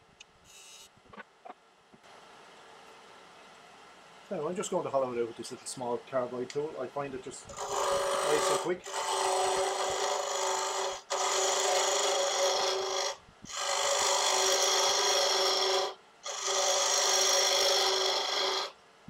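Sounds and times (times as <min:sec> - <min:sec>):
lathe tool scraping wood: 0:07.5 - 0:18.8.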